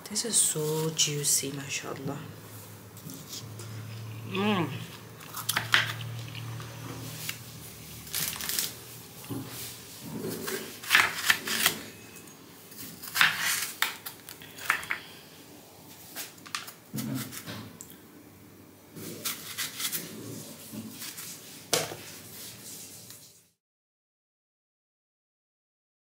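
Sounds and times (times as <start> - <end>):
knife crunching through watermelon: 4.8 - 12.0, 12.8 - 14.7, 16.9 - 17.5, 19.0 - 21.3.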